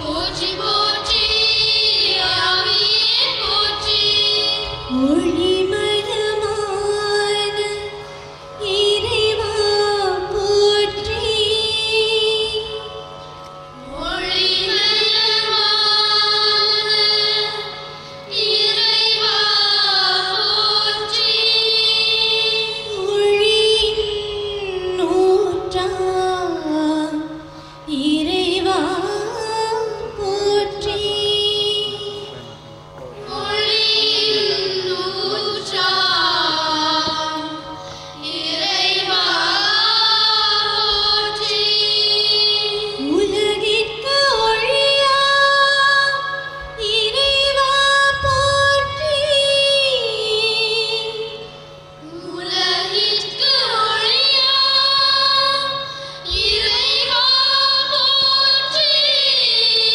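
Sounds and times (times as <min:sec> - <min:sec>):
steady low drone: 0:46.5 - 0:51.4.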